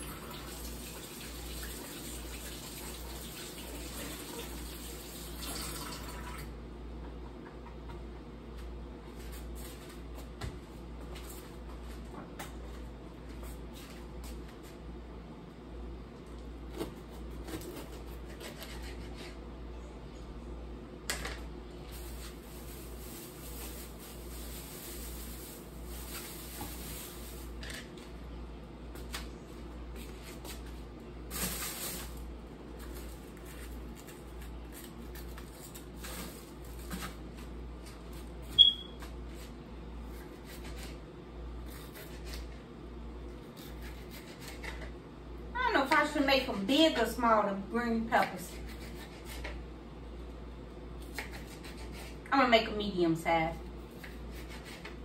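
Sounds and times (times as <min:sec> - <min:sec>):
steady low hum: 0:06.5 - 0:55.0
short high chirp: 0:38.6 - 0:39.0.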